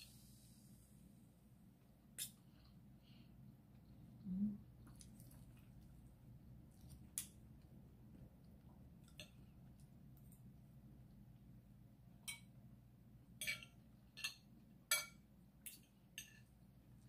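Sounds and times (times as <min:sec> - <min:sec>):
quiet chewing: 0:03.7 - 0:11.2.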